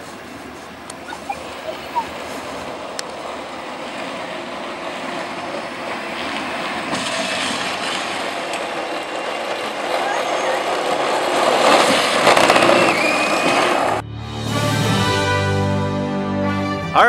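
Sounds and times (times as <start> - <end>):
toy car wheels rolling and whirring: 6.3 - 14.0.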